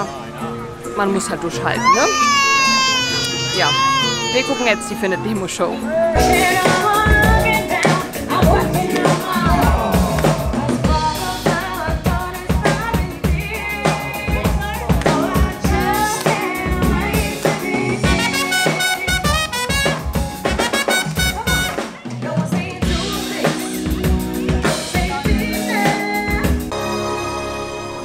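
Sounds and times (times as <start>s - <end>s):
person singing: 5.8s - 19.3s
live band playing upbeat music: 6.1s - 27.7s
trumpet: 18.0s - 22.0s.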